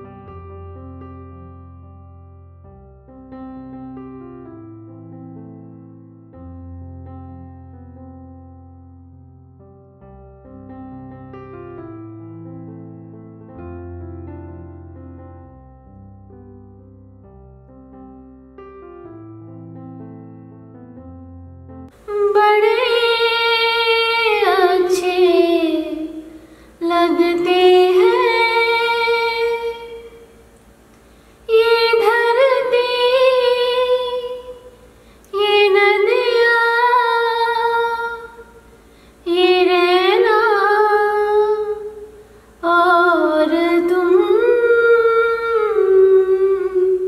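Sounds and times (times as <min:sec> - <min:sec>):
woman singing unaccompanied: 0:22.0 - 0:30.3, 0:31.5 - 0:34.7, 0:35.3 - 0:38.5, 0:39.2 - 0:42.0, 0:42.6 - 0:47.0.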